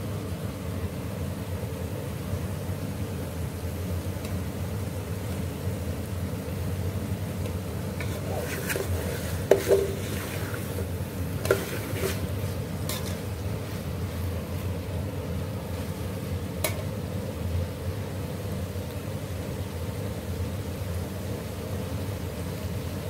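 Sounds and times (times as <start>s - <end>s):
spoon knocking and scraping pot: 8.0s - 10.6s, 11.4s - 12.3s, 12.9s - 13.2s.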